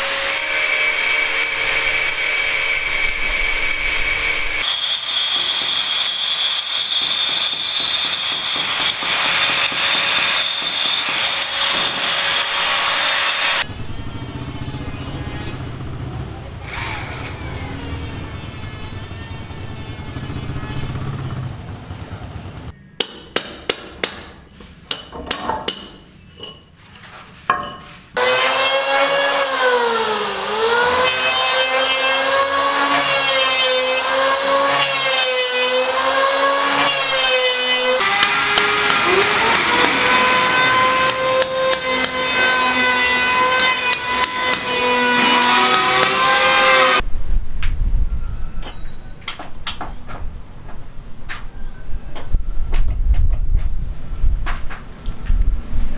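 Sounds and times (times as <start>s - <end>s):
power saw cutting timber: 0.0s - 15.8s, 16.6s - 21.3s, 28.2s - 47.0s
hammer strikes: 7.0s - 13.7s, 23.0s - 26.1s, 38.0s - 46.6s
power drill whining: 16.6s - 17.7s, 35.0s - 47.0s.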